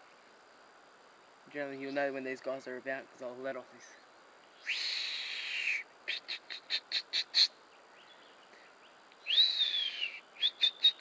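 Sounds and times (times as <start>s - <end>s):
person whistling hawk call: 4.6s - 7.5s, 9.2s - 11.0s.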